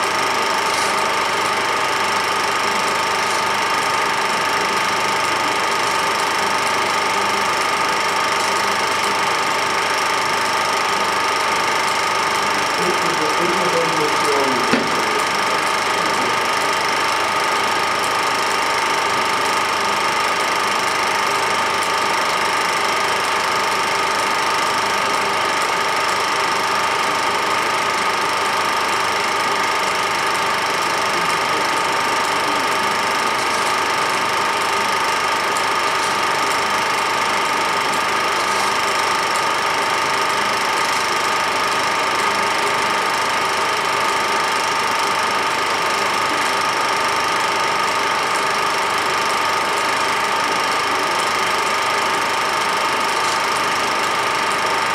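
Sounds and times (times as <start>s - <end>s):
film projector whirring: 0.0s - 54.9s.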